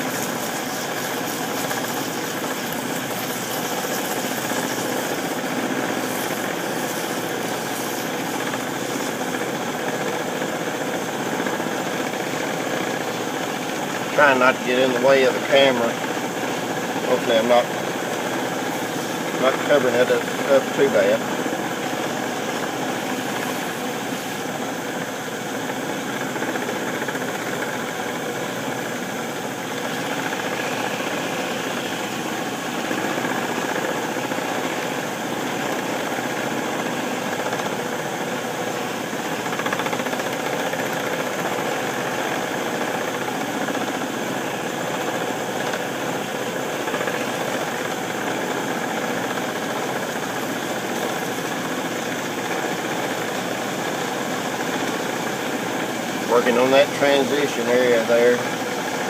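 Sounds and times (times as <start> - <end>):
sandpaper on spinning wood: 0.0 - 10.0
metal lathe running: 0.0 - 59.0.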